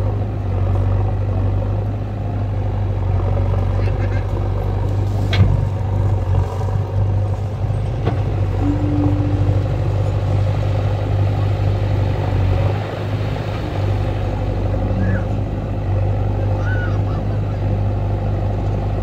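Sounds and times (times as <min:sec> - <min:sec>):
diesel engine running: 0:00.0 - 0:19.0
short steady tone: 0:08.5 - 0:10.4.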